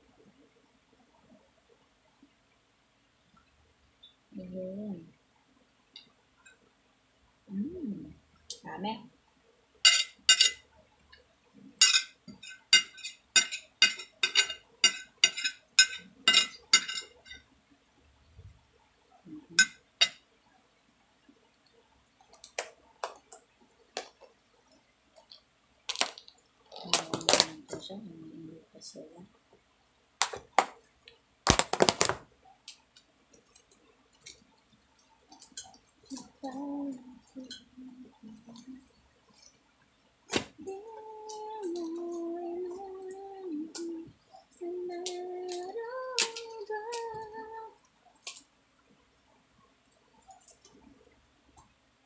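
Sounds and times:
metal spoon clinking on plate: 0:09.9 - 0:10.6, 0:11.8 - 0:17.4, 0:19.6 - 0:20.2.

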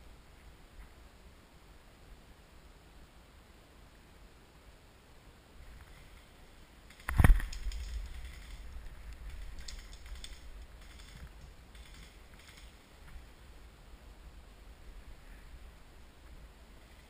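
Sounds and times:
dry leaves and twigs crackling: 0:05.7 - 0:13.4.

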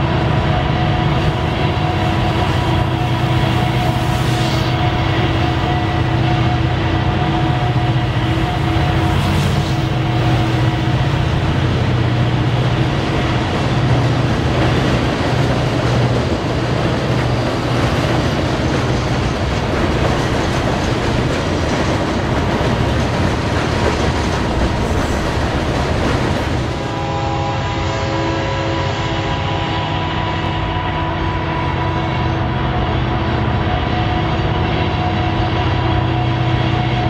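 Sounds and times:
diesel locomotive rumble: 0:00.0 - 0:37.0
freight cars clattering on rails: 0:08.6 - 0:26.9.

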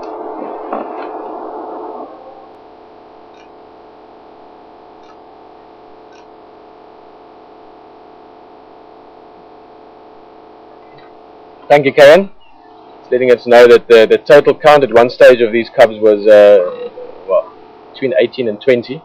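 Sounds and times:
low hiss: 0:00.0 - 0:19.0
steady electrical hum: 0:00.0 - 0:19.0
faint ticks: 0:05.0 - 0:05.2.

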